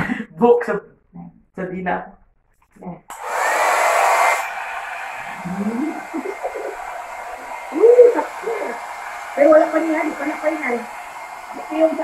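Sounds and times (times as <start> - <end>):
hair dryer blowing: 3.1 - 12.0.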